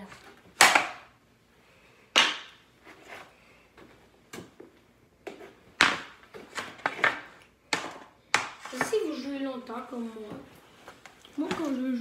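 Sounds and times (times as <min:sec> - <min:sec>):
hockey stick hitting puck: 0:00.6 - 0:01.1, 0:02.1 - 0:02.6, 0:05.3 - 0:09.1.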